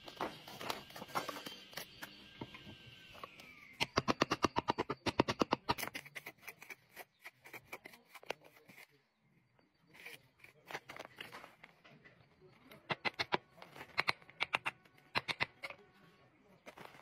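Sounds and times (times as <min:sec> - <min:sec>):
hammer tapping stone: 0:03.8 - 0:05.9, 0:12.9 - 0:15.6.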